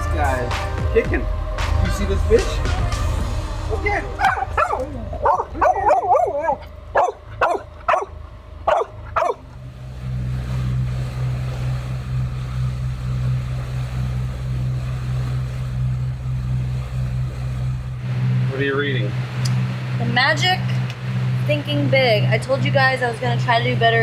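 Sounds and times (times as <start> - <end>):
boat engine droning: 0.0 - 24.0
dog barking: 4.2 - 9.4
dog yelping: 4.2 - 9.4.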